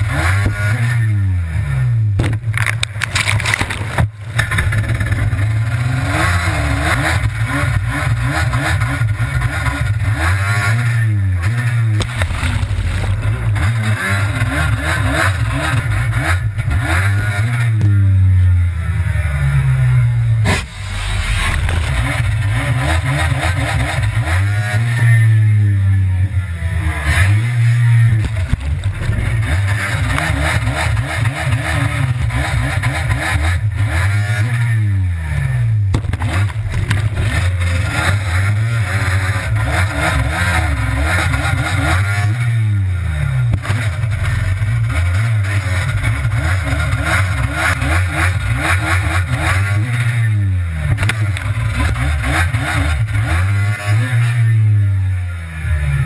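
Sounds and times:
jet ski engine revving: 0:04.4 - 0:17.8
water rushing and spray: 0:20.5 - 0:23.1.

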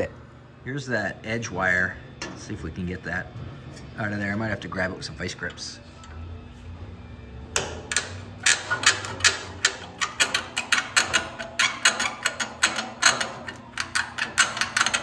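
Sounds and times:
sharp metallic clicks and scrapes: 0:07.6 - 0:15.0.

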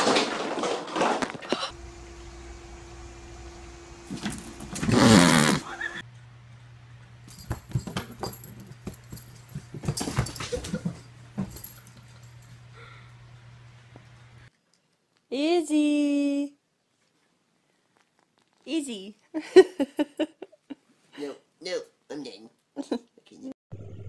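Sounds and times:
cats scuffling: 0:07.3 - 0:12.7.

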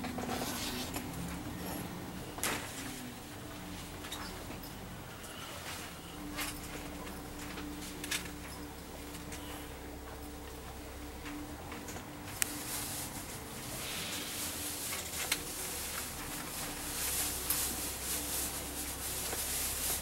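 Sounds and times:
coach running drone and hiss: 0:12.4 - 0:16.9.

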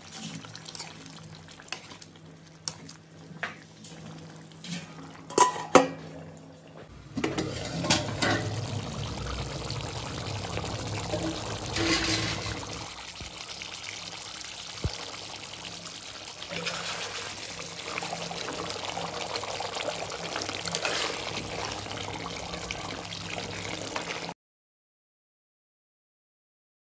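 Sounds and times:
curry bubbling in a pan: 0:00.0 - 0:05.2, 0:06.9 - 0:24.3.

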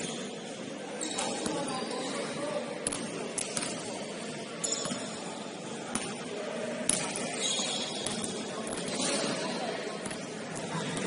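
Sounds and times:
sneaker squeaks: 0:00.0 - 0:02.6, 0:03.4 - 0:05.3, 0:06.9 - 0:11.0
murmur from hall: 0:00.0 - 0:11.0.

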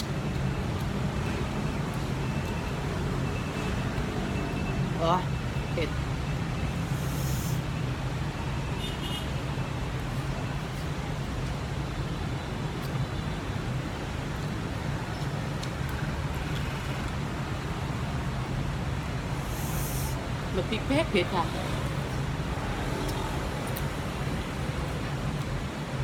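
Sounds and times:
passing vehicles rumble: 0:00.0 - 0:26.0.

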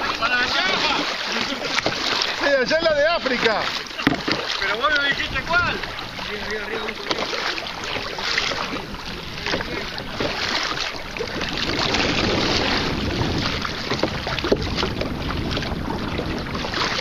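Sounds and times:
water lapping against kayak: 0:00.0 - 0:17.0
wind rumble on microphone: 0:05.1 - 0:06.8, 0:07.6 - 0:17.0.

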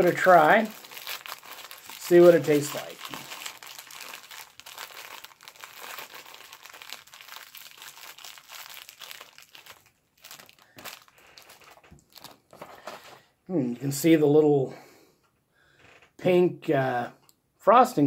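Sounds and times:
plastic wrapper crinkling: 0:00.0 - 0:13.2.

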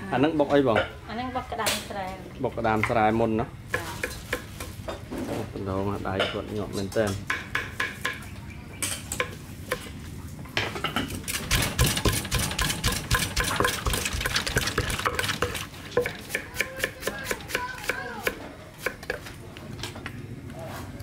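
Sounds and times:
wooden pestle knocking in clay mortar: 0:11.4 - 0:19.2.

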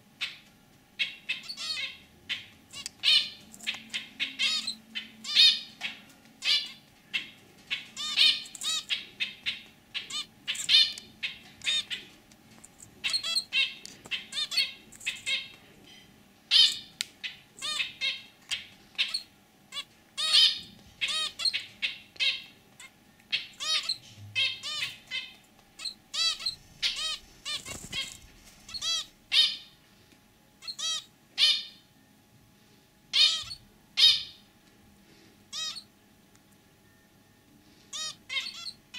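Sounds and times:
finch calling: 0:01.0 - 0:12.1, 0:13.0 - 0:15.6, 0:16.5 - 0:29.7, 0:30.6 - 0:31.8, 0:33.2 - 0:34.4, 0:35.5 - 0:35.9, 0:37.9 - 0:38.9.

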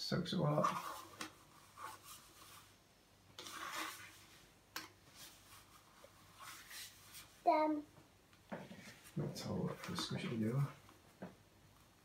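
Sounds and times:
spoon scraping slime in bowl: 0:03.4 - 0:04.2.

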